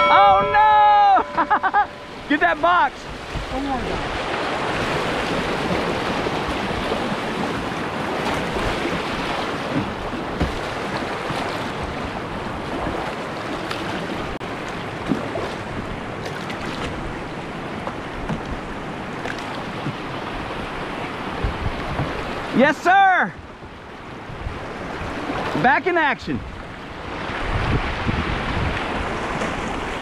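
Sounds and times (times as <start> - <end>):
whitewater rapids rushing: 0.0 - 16.7, 19.0 - 23.3.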